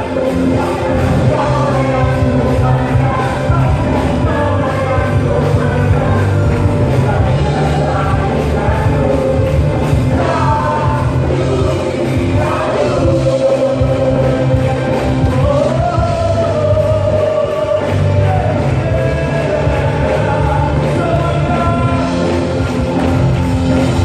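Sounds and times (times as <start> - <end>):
drums: 0.0 - 24.0
guitars: 0.0 - 24.0
keyboard: 0.0 - 24.0.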